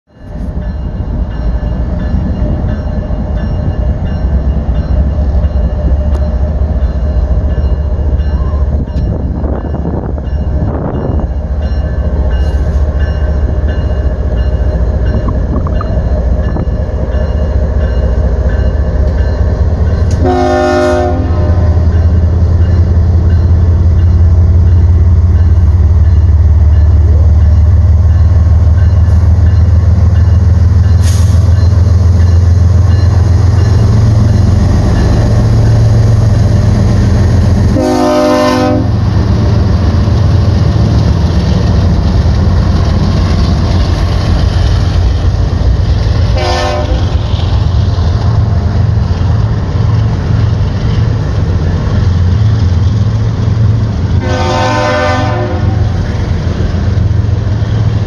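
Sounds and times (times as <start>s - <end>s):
diesel locomotive rumble: 0.1s - 58.0s
locomotive horn blast: 20.1s - 21.9s, 37.7s - 39.0s, 46.3s - 47.2s, 54.2s - 56.0s.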